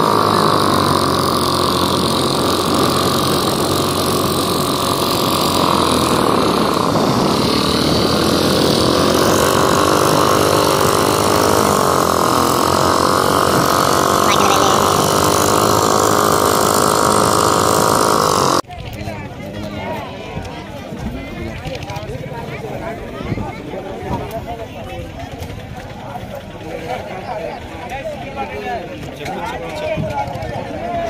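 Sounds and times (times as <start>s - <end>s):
boat engine running steadily: 0.0s - 18.6s.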